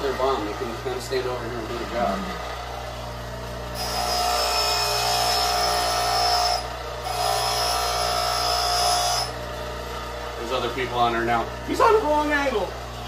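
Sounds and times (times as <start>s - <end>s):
grinder motor hum: 0.0s - 13.0s
grinding wheel on drill bit: 3.7s - 9.4s.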